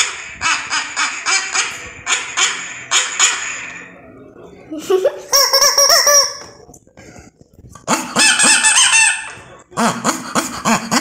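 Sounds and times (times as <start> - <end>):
rubber chicken squawking: 7.8 - 11.0.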